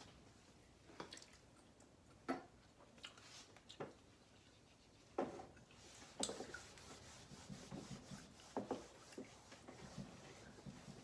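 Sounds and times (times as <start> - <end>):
eraser scrubbing whiteboard: 5.8 - 11.0.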